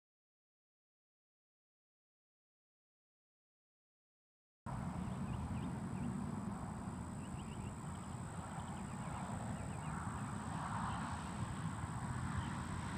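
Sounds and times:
wind rumbling on microphone: 0:04.7 - 0:12.9
faint bird chirps: 0:07.2 - 0:10.3.

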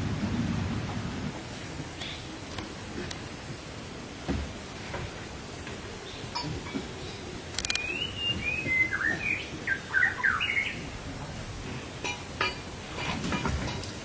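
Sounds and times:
songbird singing whistled notes: 0:07.0 - 0:10.8
sharp clicks: 0:07.5 - 0:07.9.

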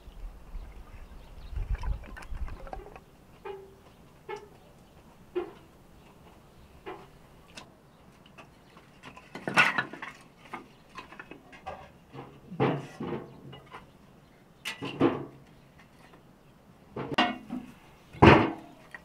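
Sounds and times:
firewood sticks clattering on floor: 0:08.8 - 0:13.8.

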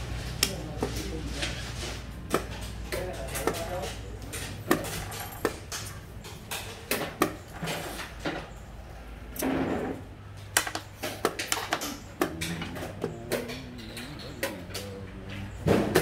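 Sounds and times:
game pieces clacking on wooden board: 0:10.5 - 0:15.0.

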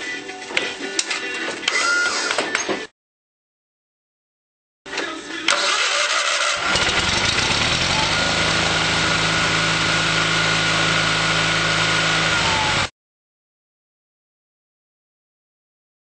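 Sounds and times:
lawn tractor engine running: 0:05.5 - 0:12.9.

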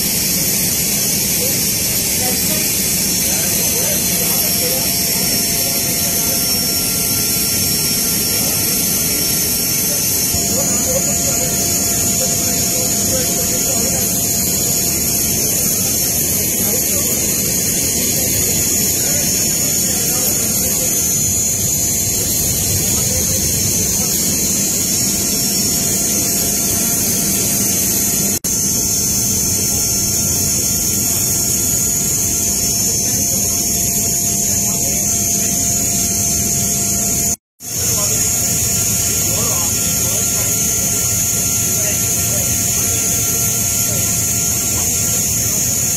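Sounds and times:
aircraft machinery rush and whine: 0:00.0 - 0:45.9
steady tones: 0:00.0 - 0:45.9.

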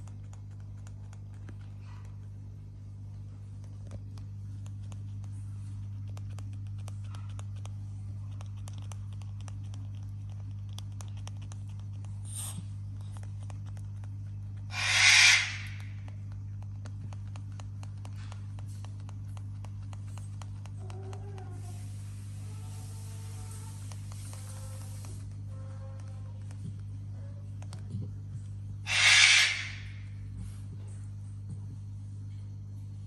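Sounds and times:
small clicks and taps: 0:00.0 - 0:02.4, 0:03.2 - 0:12.3, 0:12.9 - 0:14.6, 0:15.7 - 0:21.7, 0:25.9 - 0:28.5
harsh animal call: 0:14.7 - 0:15.8, 0:28.8 - 0:30.0.

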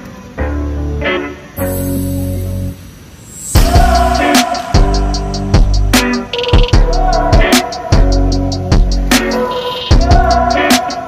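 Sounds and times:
ticking hi-hats: 0:03.5 - 0:11.0
deep bass line: 0:03.6 - 0:06.1
drum hits: 0:03.6 - 0:10.8.

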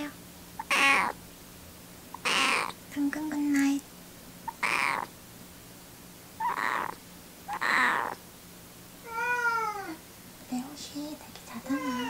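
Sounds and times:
kitten purring: 0:00.6 - 0:01.2, 0:02.2 - 0:02.8, 0:04.5 - 0:05.1, 0:06.4 - 0:08.2.

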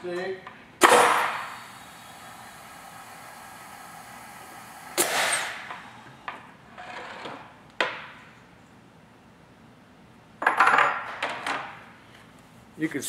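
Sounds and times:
loud noisy release: 0:00.8 - 0:06.3
die-cutting press humming: 0:00.8 - 0:06.5.

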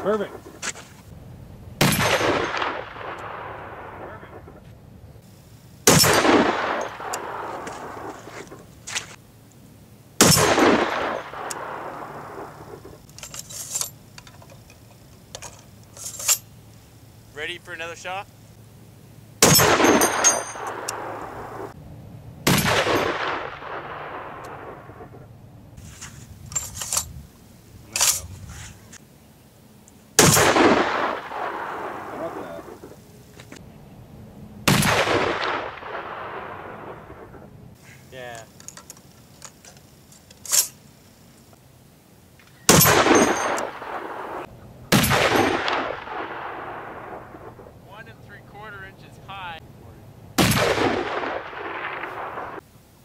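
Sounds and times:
rifle shot with echo: 0:01.8 - 0:04.6, 0:05.8 - 0:08.5, 0:10.2 - 0:13.0, 0:19.4 - 0:21.8, 0:22.4 - 0:25.2, 0:30.2 - 0:33.0, 0:34.6 - 0:37.4, 0:42.7 - 0:47.8, 0:50.4 - 0:52.6.

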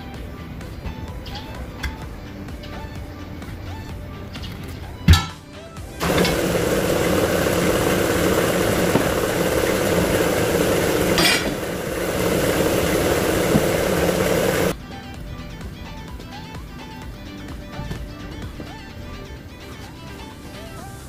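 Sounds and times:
air compressor running: 0:05.9 - 0:14.8.

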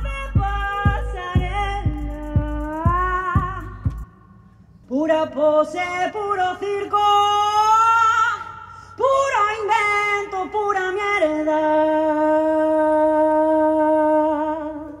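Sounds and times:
person singing: 0:00.0 - 0:04.1.

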